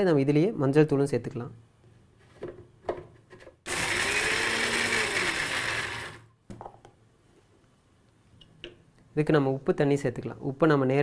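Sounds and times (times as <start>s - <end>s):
mixer grinder motor running: 3.7s - 6.3s.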